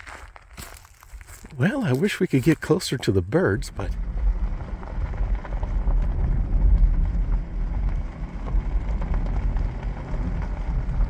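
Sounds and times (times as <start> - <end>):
wind buffeting microphone: 3.2 - 11.0.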